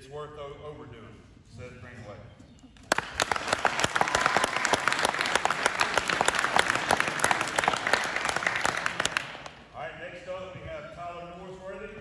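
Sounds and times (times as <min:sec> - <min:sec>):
audience applauding: 0:02.8 - 0:09.7.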